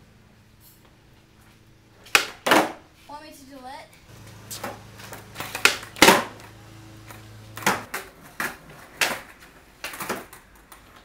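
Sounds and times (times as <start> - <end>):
skateboard clacking on concrete: 2.1 - 2.8, 4.6 - 6.4, 7.6 - 11.0.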